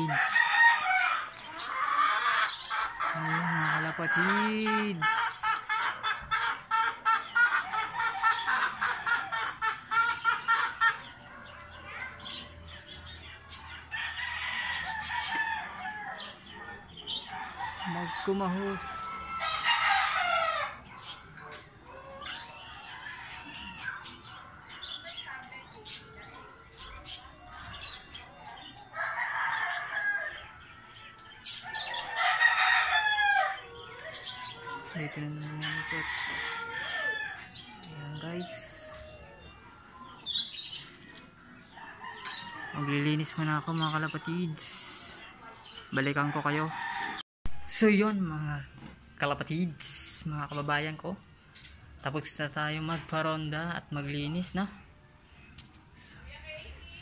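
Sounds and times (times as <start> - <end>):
chickens clucking: 0.0 - 47.2
rooster crowing: 17.2 - 20.9, 28.9 - 30.4, 31.5 - 34.7, 35.6 - 37.5.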